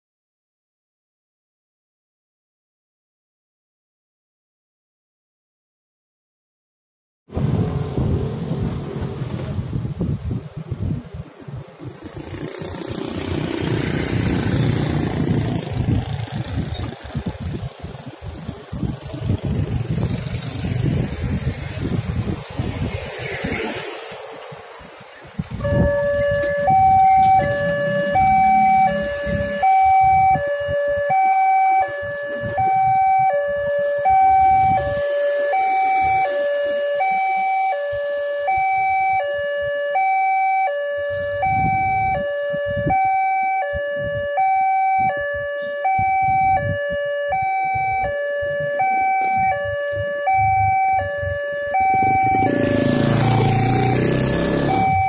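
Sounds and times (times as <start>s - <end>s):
road vehicle engines rumbling: 7.3s - 55.0s
level crossing two-tone alarm: 25.6s - 55.0s.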